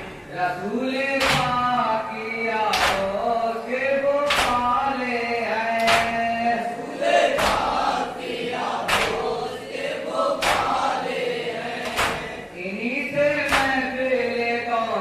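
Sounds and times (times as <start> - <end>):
men chanting in unison: 0.4 - 12.6.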